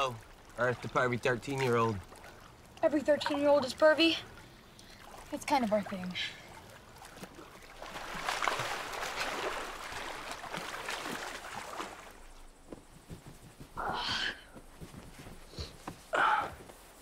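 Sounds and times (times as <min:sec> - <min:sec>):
water splashing off swimmers: 0:00.0 - 0:12.6.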